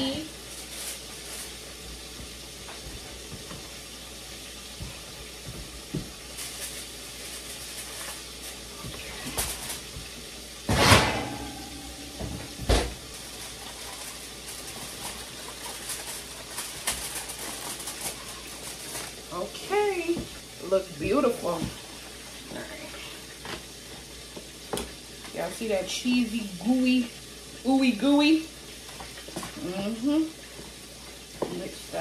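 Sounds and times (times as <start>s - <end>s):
baking pan scraping clatter: 10.6s - 13.2s.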